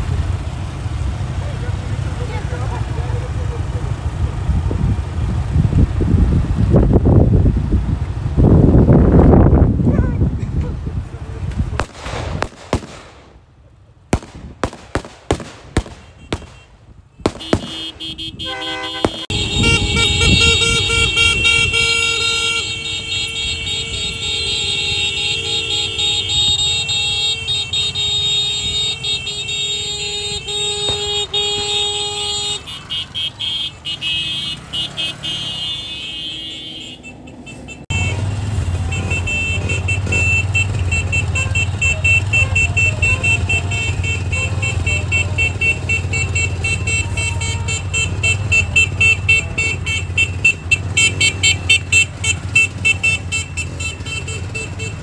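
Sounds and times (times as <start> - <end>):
low engine rumble: 0.0 - 55.0
vehicle engines running: 0.0 - 55.0
vehicle horns sounding: 14.6 - 55.0.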